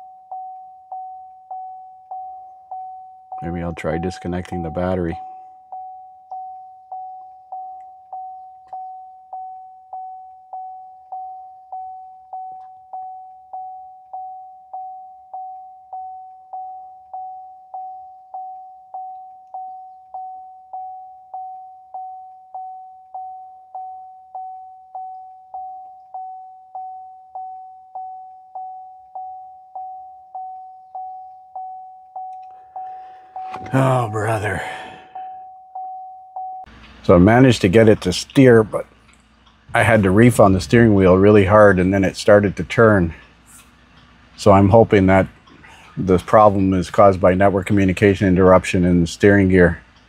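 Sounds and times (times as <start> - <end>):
high warning chime ding: 0.0 - 36.7.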